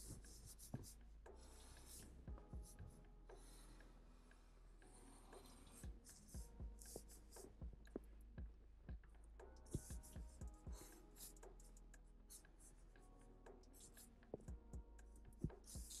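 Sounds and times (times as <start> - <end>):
marker scratching on paper: 0.0 - 3.8, 9.7 - 12.7, 15.4 - 16.0.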